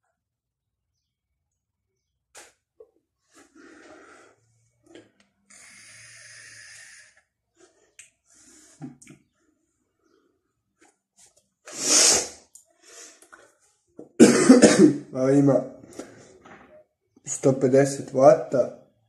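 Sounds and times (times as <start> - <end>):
short burst of breath: 5.5 - 7.2, 11.7 - 13.1
vape hissing: 5.5 - 7.2
person exhaling vapour: 5.5 - 7.3, 11.7 - 13.2.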